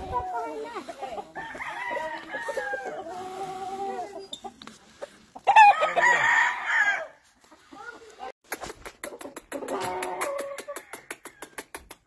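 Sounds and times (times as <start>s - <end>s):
roosters crowing: 1.3s - 4.2s, 5.4s - 7.2s.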